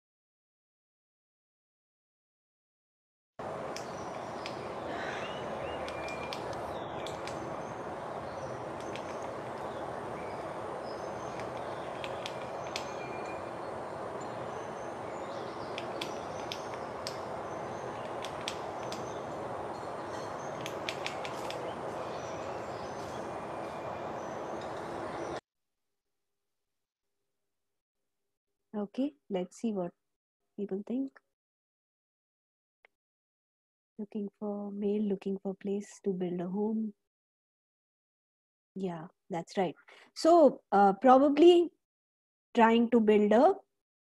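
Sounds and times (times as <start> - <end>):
bird pecking at tree trunk: 3.7 - 7.6, 8.2 - 10.0, 11.2 - 13.4, 15.5 - 19.4, 20.5 - 22.5
faint high bird chirps: 3.7 - 25.4.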